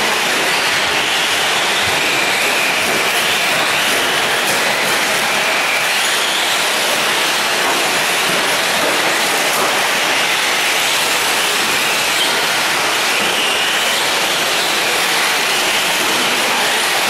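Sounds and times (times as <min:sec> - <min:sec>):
electric motors rushing: 0:00.0 - 0:17.0.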